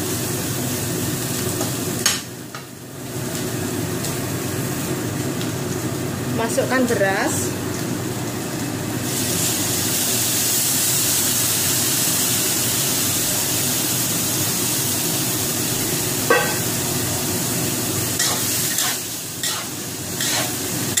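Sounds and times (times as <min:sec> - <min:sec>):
rice sizzling in a hot wok: 0:00.0 - 0:21.0
metal spatula scraping a wok: 0:18.2 - 0:20.6.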